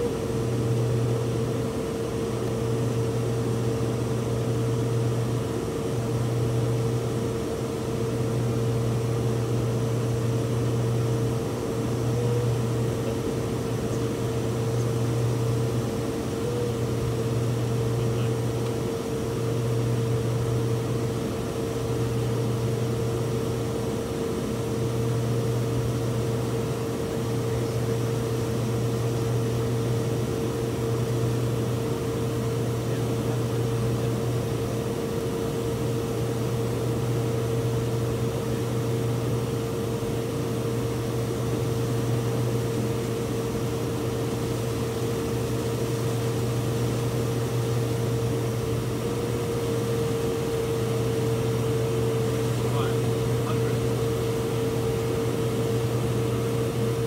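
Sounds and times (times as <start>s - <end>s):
aircraft propellers droning: 0.0s - 57.0s.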